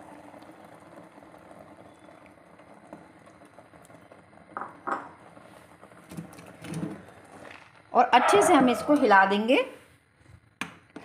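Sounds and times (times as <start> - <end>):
sauce bubbling and hissing: 0.0 - 8.0.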